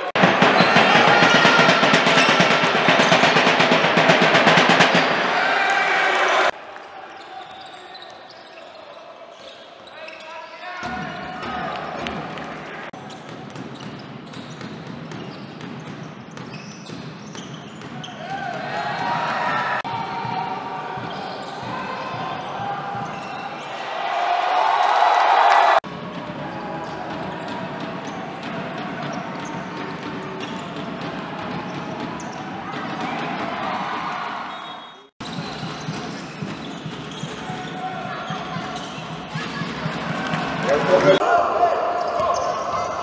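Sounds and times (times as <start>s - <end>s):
steady hall noise: 0.0s - 17.2s, 17.8s - 43.0s
sneaker squeaks: 7.2s - 10.8s, 13.0s - 18.6s, 20.9s - 23.8s, 31.7s - 33.0s, 34.4s - 39.8s, 42.0s - 43.0s
ball bouncing on hardwood court: 13.1s - 18.2s.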